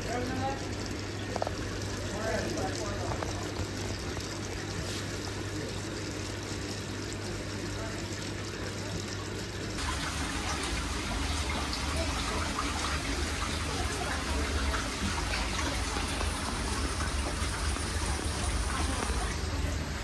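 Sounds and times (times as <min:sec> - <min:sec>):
low pump hum: 0:00.0 - 0:20.0
water running and splashing: 0:00.0 - 0:20.0.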